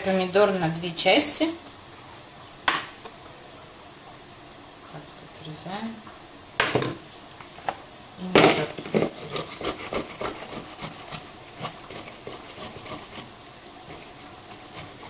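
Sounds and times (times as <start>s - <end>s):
tomato rasping on metal grater: 9.0s - 15.0s.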